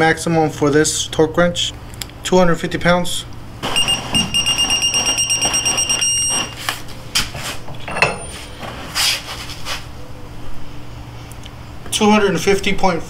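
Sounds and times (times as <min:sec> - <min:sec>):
high electronic beep: 0:03.7 - 0:06.6.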